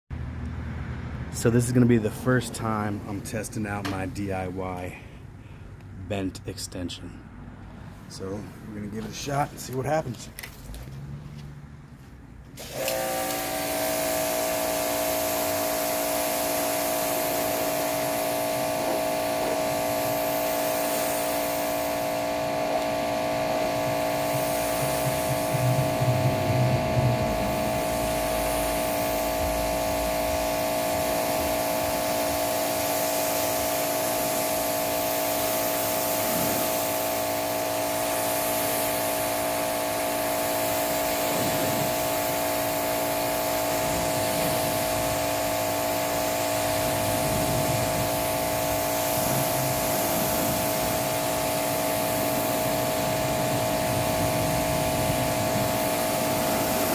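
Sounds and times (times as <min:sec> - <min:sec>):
pressure washer motor humming: 0:12.5 - 0:56.9
water jet spraying on car: 0:12.5 - 0:56.9.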